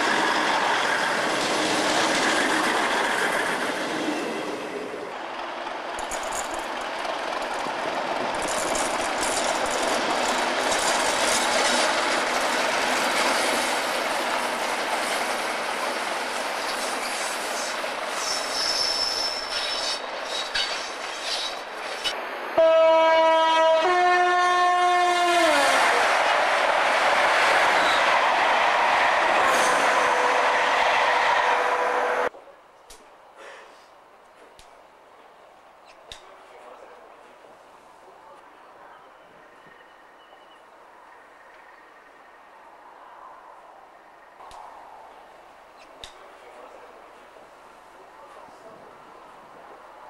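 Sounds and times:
train wheel and rail noise: 0.0 - 50.0
high wheel squeal: 16.9 - 22.2
two-tone train horn blast: 22.6 - 25.8, 29.5 - 30.6.

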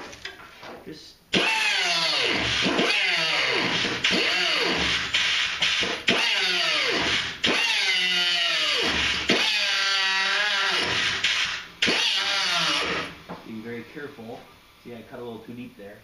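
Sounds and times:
cutoff wheel grinding steel: 1.4 - 13.2.

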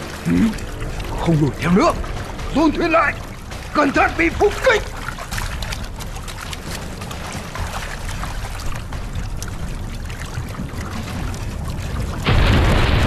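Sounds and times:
river water rushing: 0.0 - 13.0.

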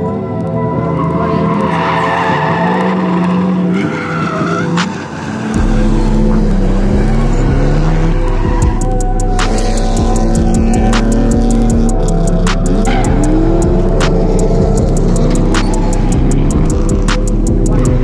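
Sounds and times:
car engine revving: 0.0 - 18.0
tyres squealing: 0.6 - 18.0
deep bass hum: 5.6 - 18.0.

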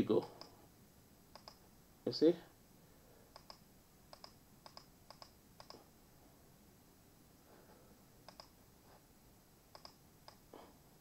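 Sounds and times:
mouse or keyboard clicks: 1.3 - 1.6, 3.4 - 5.8, 8.3 - 8.6, 9.7 - 10.4.

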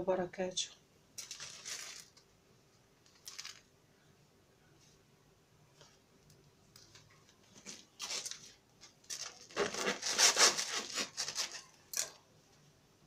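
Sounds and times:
knife sawing through bread: 9.5 - 11.7.

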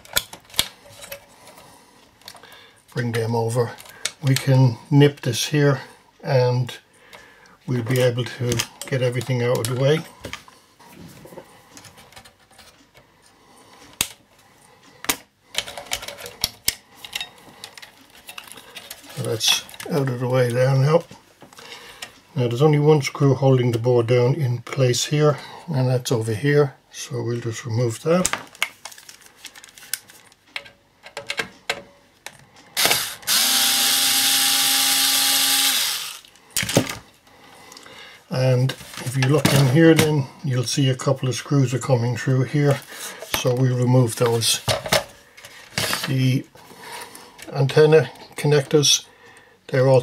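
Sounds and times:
plastic connectors and tool clicking: 0.0 - 1.6, 15.0 - 20.0
electric screwdriver running: 32.8 - 36.3.

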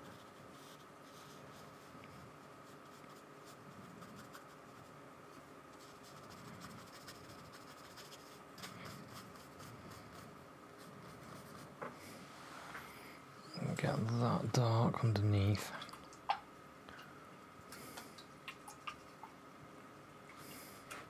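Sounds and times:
paintbrush scratching on paper: 0.0 - 11.8.

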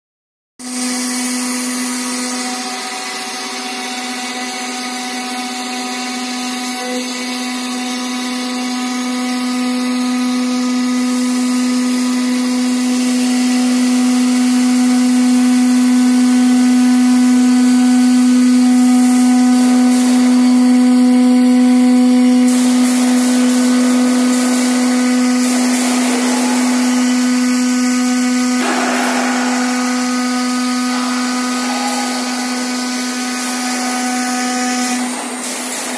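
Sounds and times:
router spindle motor whining: 0.7 - 22.5
router bit cutting wood: 0.7 - 35.5.

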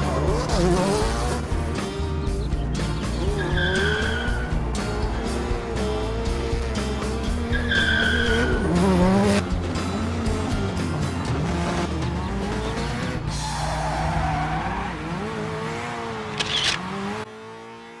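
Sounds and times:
background music: 0.0 - 16.7
race car engine revving: 0.0 - 18.0
tyre squeal: 3.3 - 4.6, 7.5 - 8.7.

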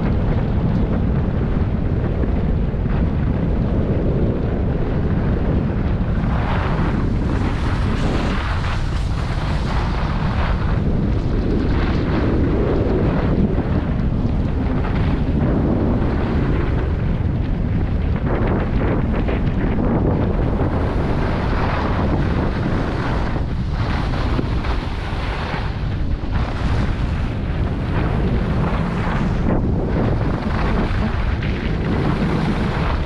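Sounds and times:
wind buffeting microphone: 0.0 - 33.0
skis scraping on packed snow: 6.2 - 13.3, 18.4 - 33.0.

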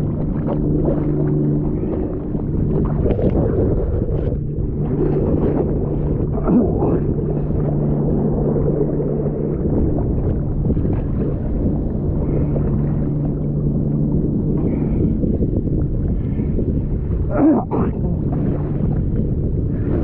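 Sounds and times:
sea water sloshing: 0.0 - 20.0
steady low hum: 0.0 - 20.0
wind noise on microphone: 0.0 - 20.0.

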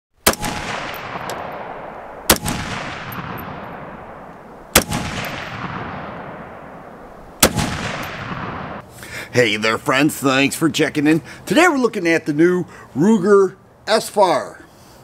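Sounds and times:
rifle shots with echo: 0.2 - 8.8.

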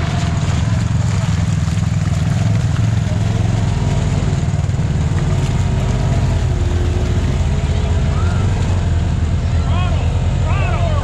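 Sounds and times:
utility vehicle engine droning: 0.0 - 11.0.

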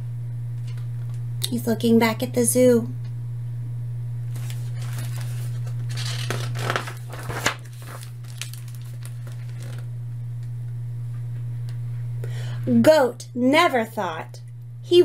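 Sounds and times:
steady low hum: 0.0 - 15.0
book pages rustling: 4.3 - 9.9.

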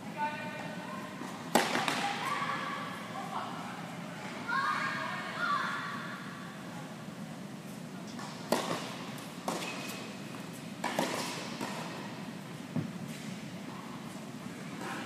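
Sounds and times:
tennis ball struck by rackets: 1.5 - 2.0, 10.8 - 12.0
tennis ball bouncing on hard court: 1.5 - 2.1, 8.2 - 10.0, 10.8 - 12.1.

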